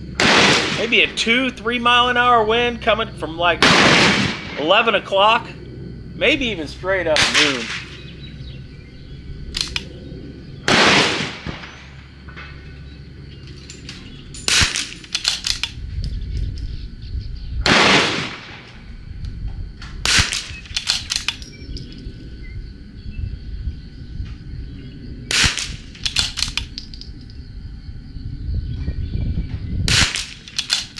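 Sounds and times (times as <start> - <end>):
rifle shots with echo: 0.2 - 1.2, 3.6 - 4.7, 7.2 - 8.0, 10.7 - 12.0, 14.5 - 15.7, 17.6 - 18.8, 20.0 - 21.3, 25.3 - 26.6, 29.9 - 30.9
metallic bolt clicks: 9.5 - 9.9, 13.5 - 15.8, 20.3 - 22.0, 26.0 - 27.1, 30.2 - 30.9.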